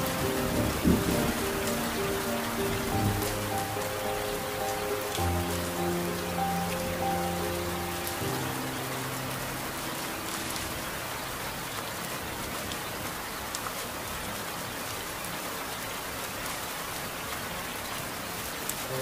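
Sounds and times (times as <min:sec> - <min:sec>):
song notes held: 0:00.0 - 0:12.0
steady rain falling: 0:00.0 - 0:19.0.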